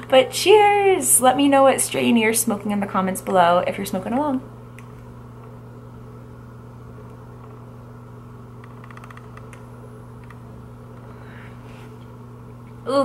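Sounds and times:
low electrical hum: 0.0 - 13.0
soft breath: 11.0 - 12.0.

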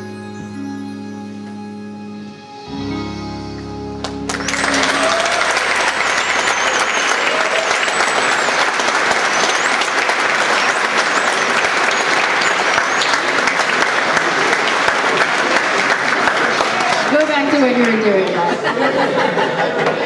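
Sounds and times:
backing music: 0.0 - 13.6
audience applause: 4.0 - 20.0
high wavering whistle: 4.4 - 10.0.

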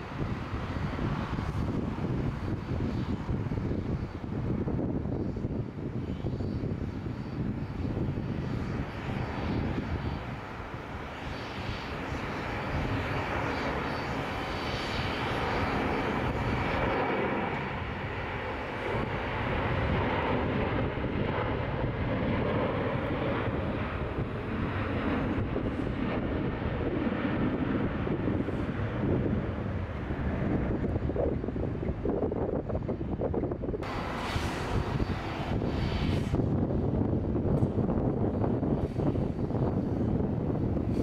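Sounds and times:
jet engines running: 0.0 - 41.0
faint high whine: 6.0 - 18.9.

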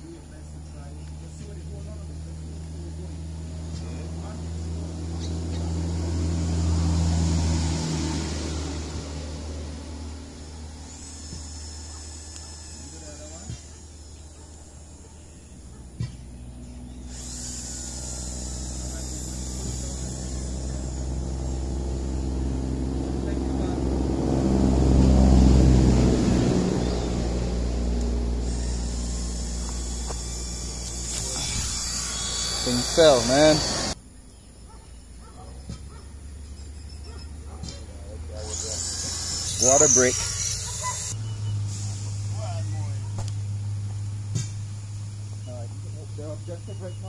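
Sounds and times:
engine running at low speed: 0.0 - 47.0
motor humming: 10.3 - 23.8, 27.8 - 34.0, 38.3 - 42.4
thin high whine: 28.4 - 34.0.

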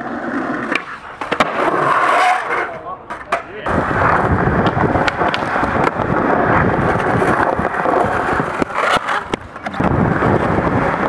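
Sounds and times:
skateboard clacks: 0.0 - 11.0
skateboard wheels rolling on paving: 0.0 - 11.0.

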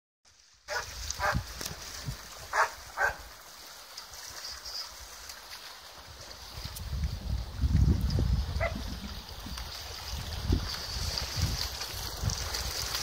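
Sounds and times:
dog barking: 0.7 - 1.4, 2.5 - 3.2, 8.6 - 8.8.

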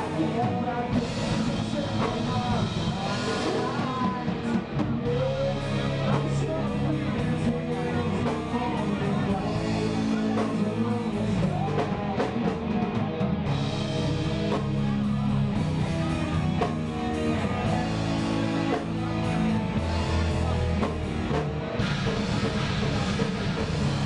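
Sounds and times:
live rock band playing: 0.0 - 24.0.

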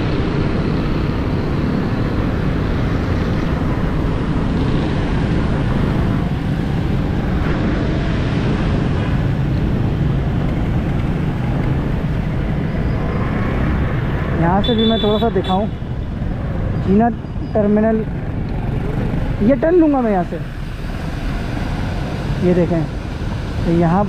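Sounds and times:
low engine hum: 0.0 - 24.0
tyres hissing on wet road: 20.4 - 24.0.

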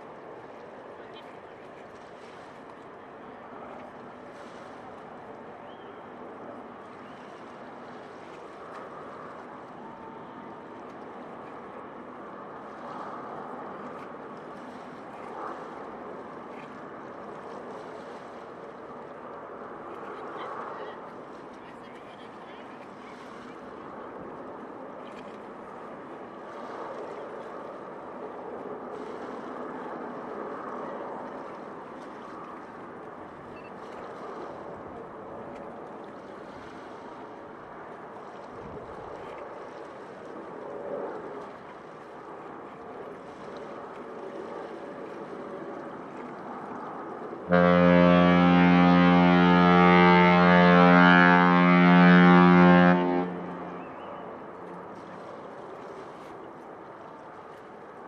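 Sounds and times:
ship's horn blast: 47.4 - 54.6.

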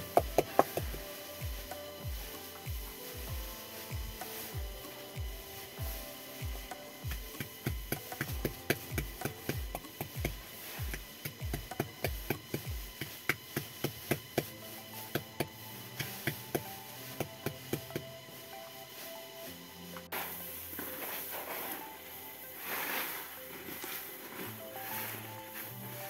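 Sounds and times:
pestle pounding in mortar: 0.0 - 1.6, 7.1 - 14.4
music with deep beat: 0.0 - 26.0.

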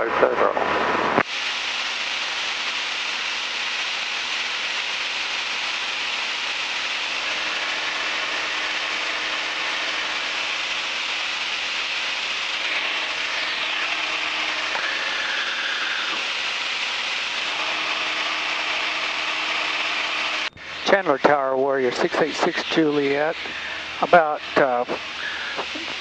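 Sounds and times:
aircraft cabin engine and wind hiss: 0.0 - 26.0.

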